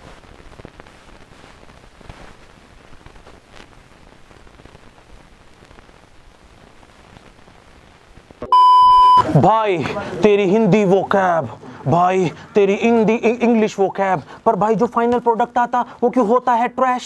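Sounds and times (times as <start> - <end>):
faint hiss with crackles: 0.0 - 17.0
steady electronic beep: 8.4 - 9.3.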